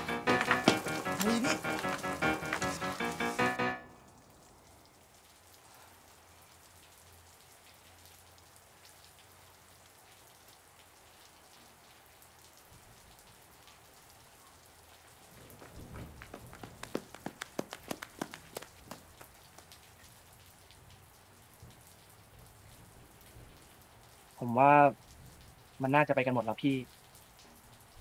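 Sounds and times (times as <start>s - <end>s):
light rain: 0.0s - 28.0s
water dripping off roof: 0.0s - 28.0s.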